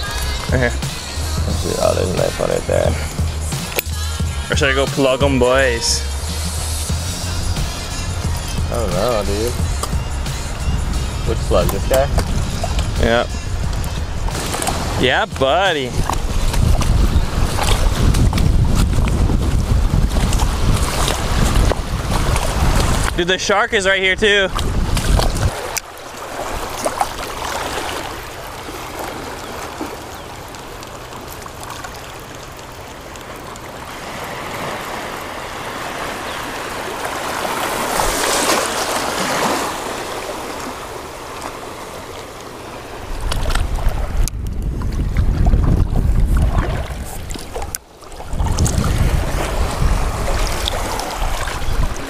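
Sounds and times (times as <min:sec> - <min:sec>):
low rumble on microphone: 0:00.0 - 0:23.2, 0:43.2 - 0:47.6, 0:48.2 - 0:52.0
water splash: 0:04.9 - 0:23.4, 0:24.2 - 0:52.0
water lapping around legs: 0:06.1 - 0:52.0.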